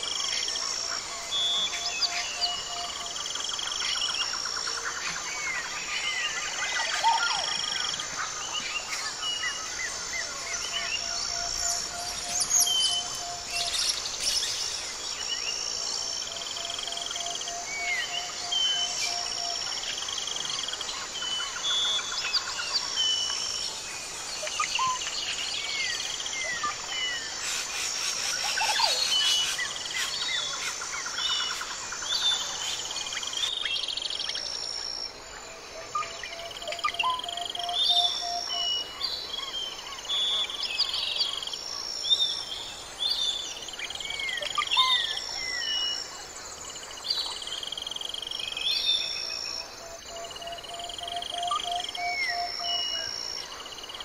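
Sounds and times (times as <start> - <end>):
insects trilling: 0.0 - 54.0
birds chirping and whistling: 10.5 - 14.8.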